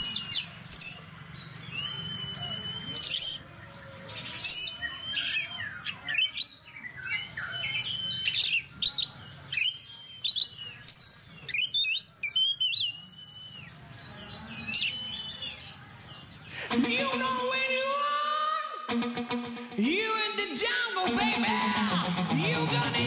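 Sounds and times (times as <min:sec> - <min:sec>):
magpie-robin singing: 0:00.0 - 0:17.8.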